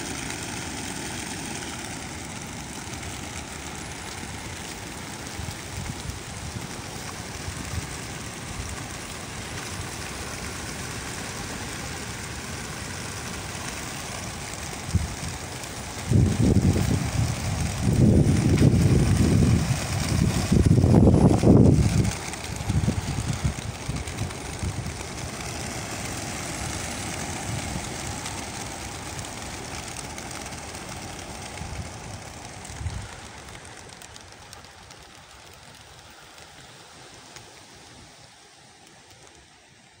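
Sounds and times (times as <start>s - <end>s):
pigeons' wings rushing: 0.0s - 40.0s
wind buffeting microphone: 14.6s - 34.3s.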